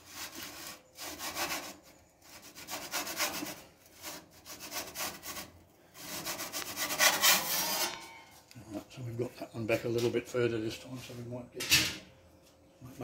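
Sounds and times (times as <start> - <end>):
metal peel scraping on stone: 0.3 - 8.4.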